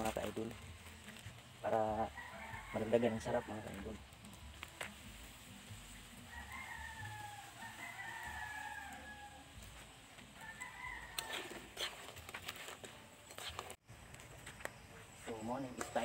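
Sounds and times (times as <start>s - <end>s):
faint sizzle of frying oil: 0.0s - 13.5s
rooster crowing: 1.9s - 4.0s, 6.2s - 9.7s, 10.3s - 11.8s.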